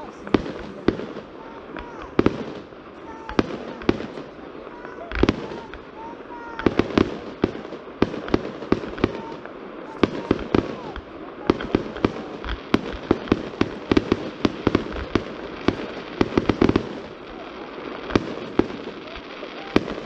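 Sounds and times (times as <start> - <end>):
fireworks bursting with sharp bangs: 0.0 - 20.0.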